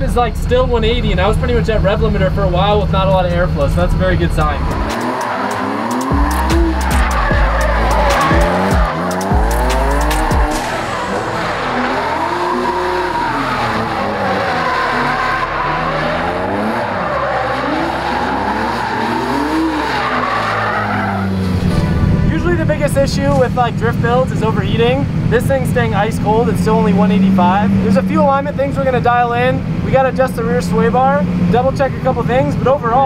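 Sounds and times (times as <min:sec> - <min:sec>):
car engine revving: 0:00.0 - 0:32.6
tyres squealing: 0:04.3 - 0:22.4.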